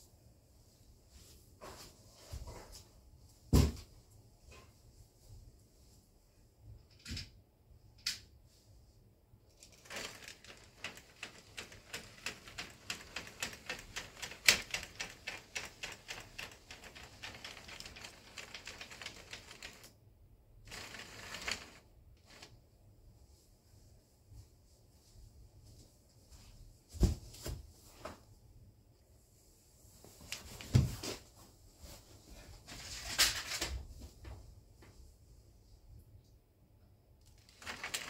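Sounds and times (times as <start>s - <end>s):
model train clicking on track: 9.8s - 19.9s, 20.7s - 22.5s.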